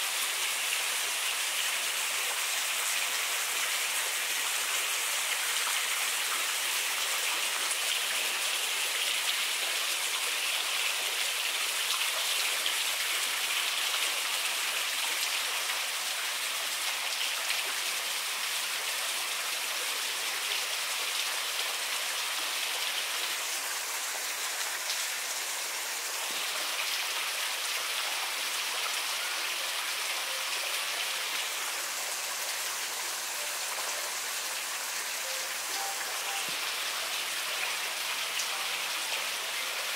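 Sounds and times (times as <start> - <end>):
running water hissing: 30.0 - 39.9.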